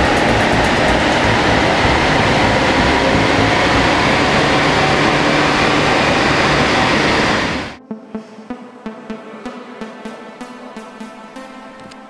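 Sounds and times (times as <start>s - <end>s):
diesel engine running hard: 0.0s - 7.8s.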